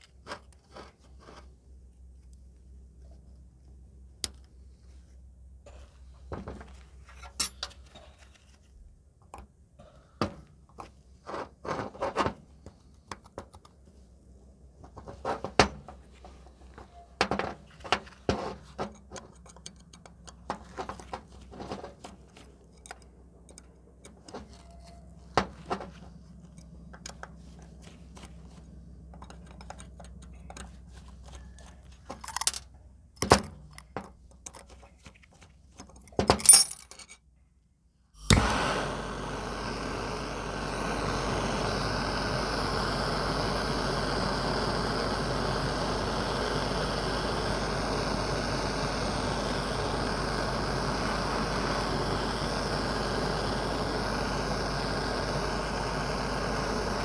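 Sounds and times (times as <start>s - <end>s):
small metal parts clinking: 32.2s - 32.7s, 35.9s - 37.3s.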